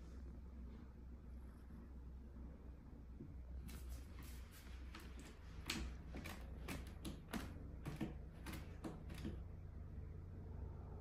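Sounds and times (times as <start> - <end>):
steady low hum: 0.0 - 11.0
cat scratching carpet: 3.6 - 9.5.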